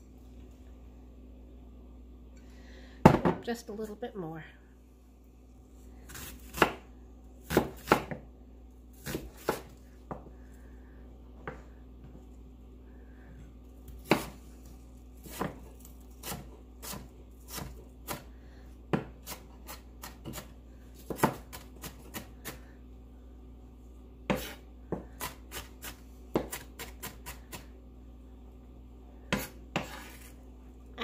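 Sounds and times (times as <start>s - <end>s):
knife chopping on cutting board: 6.1s - 8.2s, 9.0s - 9.8s, 13.9s - 14.4s, 15.2s - 18.3s, 18.9s - 22.6s, 24.3s - 27.7s, 29.3s - 30.3s.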